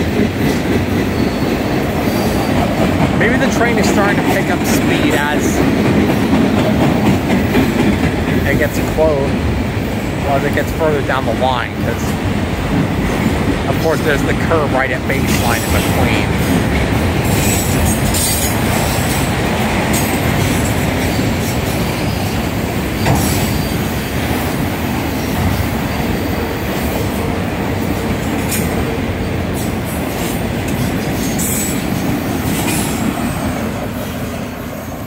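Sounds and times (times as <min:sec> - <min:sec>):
steel wheels rumbling on rails: 0:00.0 - 0:35.0
wheel squeal: 0:01.0 - 0:02.8.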